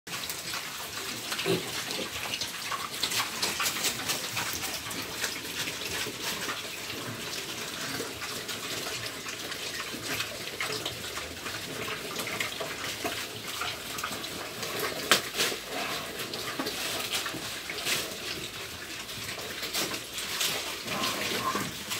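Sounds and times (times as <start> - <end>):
pigs chewing wet crunches: 0.1 - 21.9
leaves rustling: 15.2 - 21.9.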